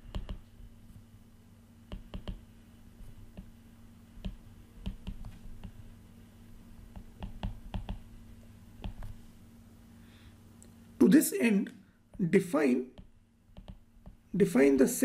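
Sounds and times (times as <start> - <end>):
stylus tapping on glass screen: 0.0 - 0.4, 1.9 - 2.4, 4.2 - 5.8, 6.9 - 8.1, 8.8 - 9.2, 13.0 - 14.2
faint low hum: 0.0 - 15.0.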